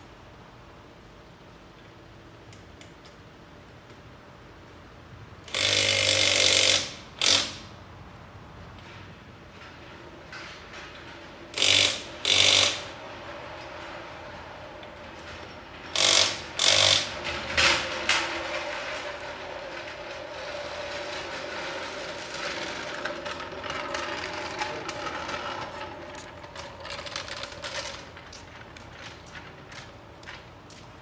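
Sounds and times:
light steady clatter: 8.7 - 31.0
impact tool rattling on lug nuts: 11.5 - 13.0, 14.8 - 28.3.

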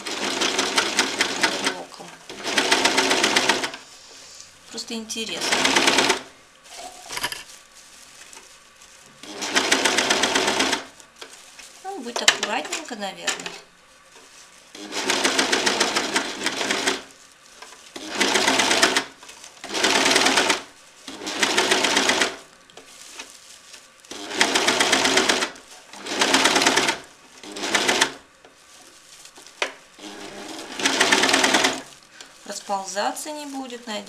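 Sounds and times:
sewing machine stitching: 0.0 - 3.8, 5.3 - 7.4, 9.2 - 10.9, 14.7 - 17.1, 18.0 - 22.4, 24.1 - 28.2, 30.0 - 31.9.

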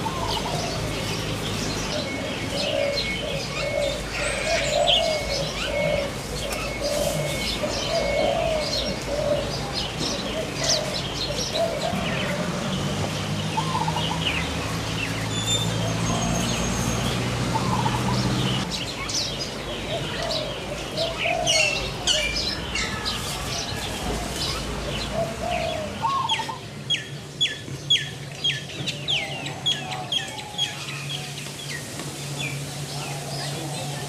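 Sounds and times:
birds chirping: 0.0 - 34.0.

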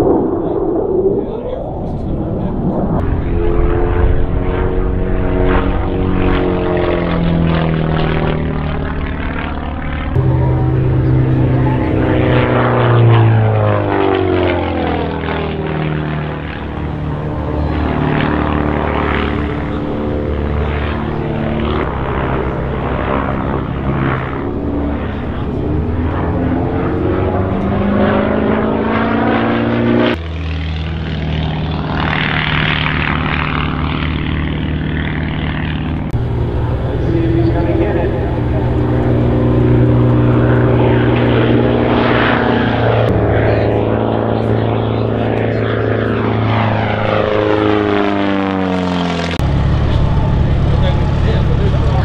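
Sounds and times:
propeller plane engine: 0.0 - 52.0.

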